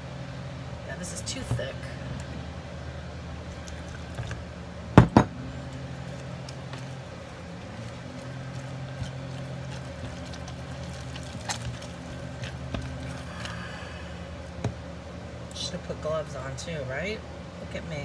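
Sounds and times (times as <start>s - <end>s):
steady low hum: 0.0s - 18.0s
hands squeezing thick paste: 5.6s - 14.7s.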